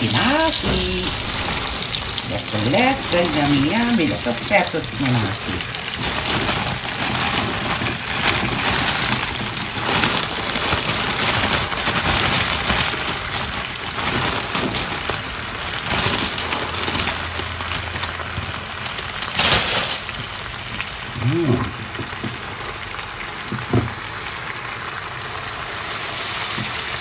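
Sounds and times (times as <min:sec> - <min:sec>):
leaves rustling: 0:00.0 - 0:20.7
plastic bag crinkling: 0:00.0 - 0:21.1
pot sizzling: 0:00.0 - 0:27.0.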